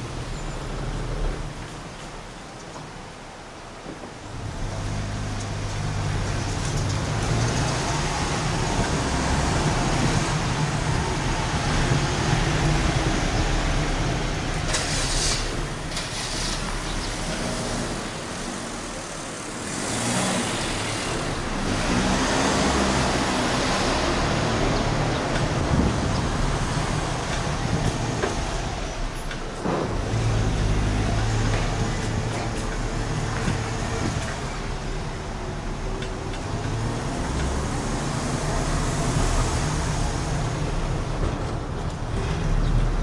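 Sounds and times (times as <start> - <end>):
tyre and road rush: 0.0 - 43.0
cars passing: 4.2 - 43.0.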